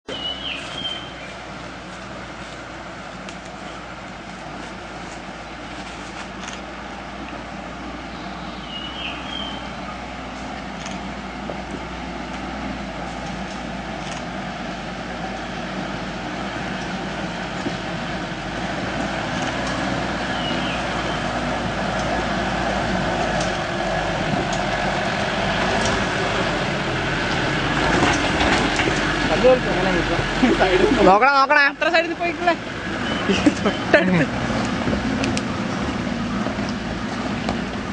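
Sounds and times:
high chirps: 0:00.1 - 0:01.4
vehicle engine crawling over rocks: 0:00.1 - 0:37.9.

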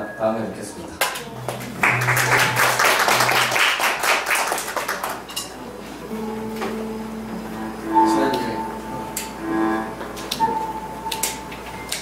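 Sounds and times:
audience applauding: 0:01.4 - 0:05.3
held amplified instrument note: 0:06.1 - 0:11.5.

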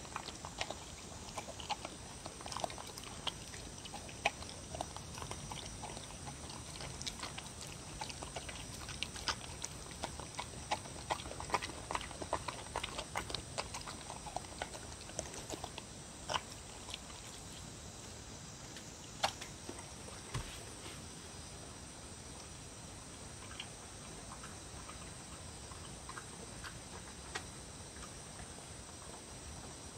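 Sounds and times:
dog chewing wet food: 0:00.0 - 0:18.1, 0:23.4 - 0:29.4.

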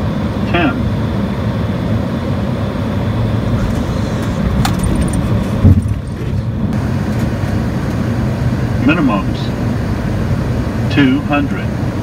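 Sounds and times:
airflow and engine rush: 0:00.0 - 0:12.0
wheels thumping on runway: 0:03.5 - 0:06.8.

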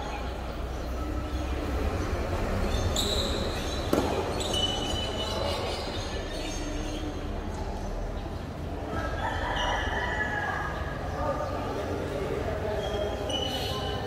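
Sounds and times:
racket striking tennis ball: 0:03.8 - 0:04.6.

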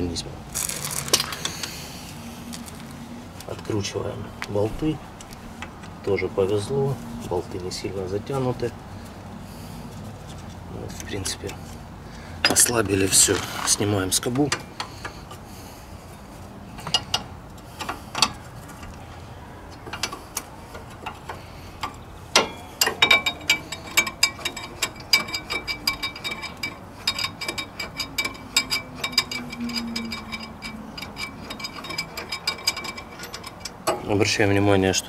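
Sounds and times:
ratchet wrench clicking: 0:19.9 - 0:34.0
metallic clinks: 0:20.8 - 0:34.1.

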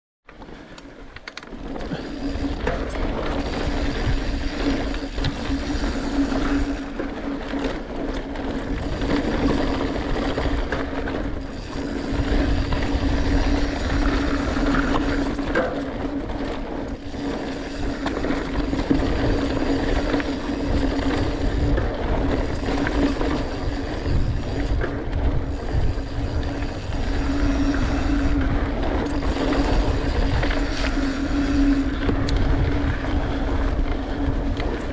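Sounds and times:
bike tyres rumbling on dirt: 0:00.3 - 0:34.9
steady humming buzz: 0:00.6 - 0:34.9.

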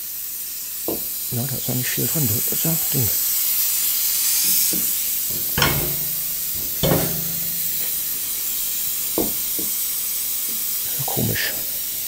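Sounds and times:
gas hissing from valve: 0:00.0 - 0:12.0
metal clunks with low ring: 0:05.3 - 0:07.9.

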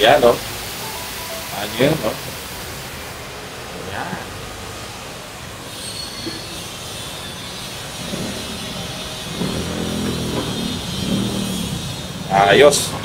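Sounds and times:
water sizzling in hot oil: 0:00.0 - 0:04.0, 0:04.6 - 0:12.7
passing vehicle engine hum: 0:08.0 - 0:13.0.

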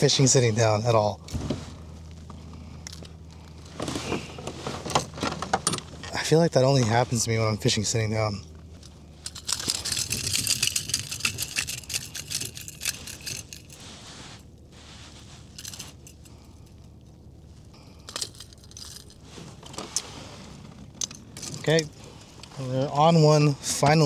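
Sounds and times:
rattling handling clicks: 0:08.7 - 0:13.8, 0:15.5 - 0:17.2, 0:18.0 - 0:22.6
light jangling: 0:09.2 - 0:13.8, 0:15.4 - 0:17.2, 0:17.9 - 0:20.1.

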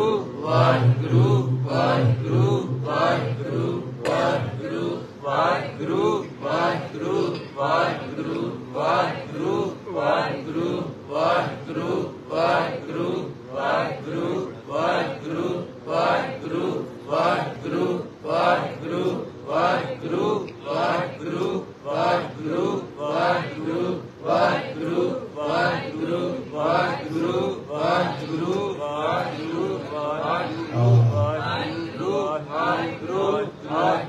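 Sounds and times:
man chanting into a microphone: 0:30.5 - 0:31.5.

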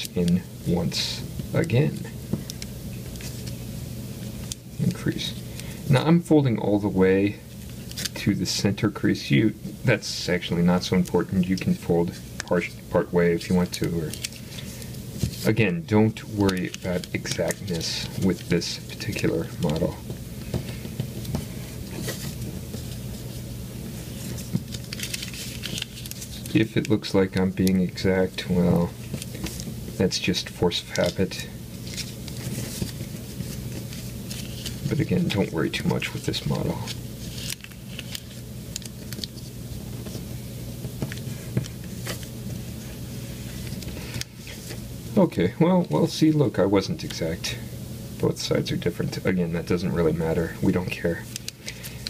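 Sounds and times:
steady low hum: 0:00.0 - 0:52.0
paper being folded and creased: 0:07.6 - 0:08.6, 0:10.2 - 0:20.1, 0:20.7 - 0:40.4, 0:41.0 - 0:44.8.

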